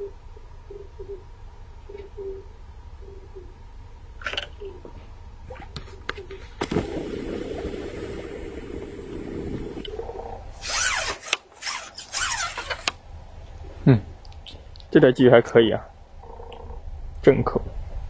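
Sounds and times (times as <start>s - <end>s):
steady low hum: 0.0s - 18.0s
fish splashing: 6.5s - 10.0s.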